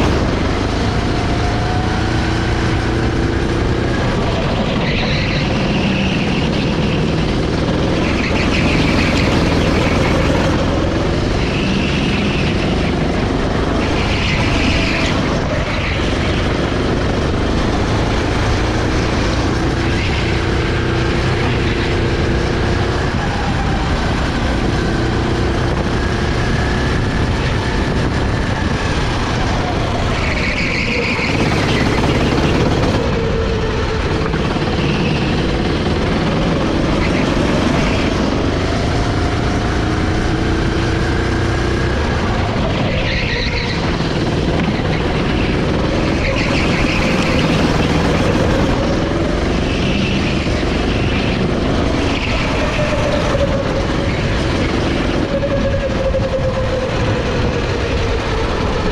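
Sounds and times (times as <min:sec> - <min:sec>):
kart engine running hard: 0:00.0 - 0:58.9.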